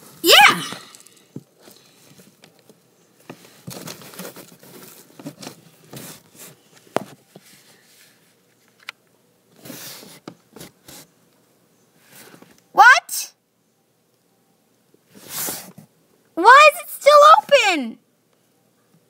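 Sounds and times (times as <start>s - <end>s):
clothing and phone scraping cardboard: 9.6s - 11.1s, 15.1s - 15.8s.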